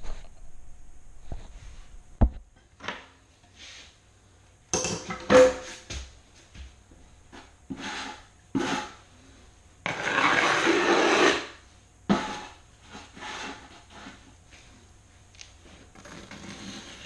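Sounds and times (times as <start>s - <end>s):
metal scraper scraping tile: 7.4s - 9.0s, 9.8s - 14.3s, 15.9s - 17.0s.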